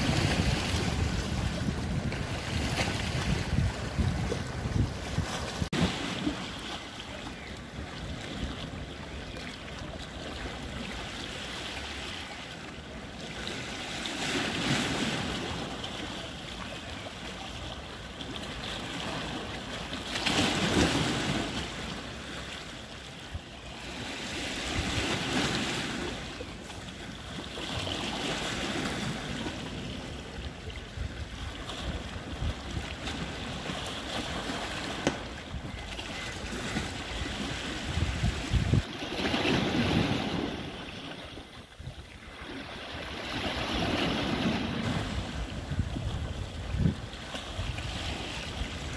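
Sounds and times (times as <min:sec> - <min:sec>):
wind on microphone: 0:00.0 - 0:06.6, 0:23.2 - 0:26.4, 0:27.6 - 0:48.9
waves splashing against rocks: 0:00.0 - 0:48.9.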